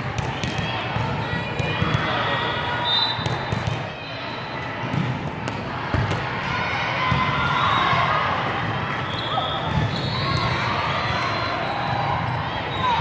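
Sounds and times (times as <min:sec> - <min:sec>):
volleyballs struck and bouncing: 0:00.0 - 0:02.3, 0:03.2 - 0:03.9, 0:04.8 - 0:06.5
murmur of voices: 0:00.0 - 0:13.0.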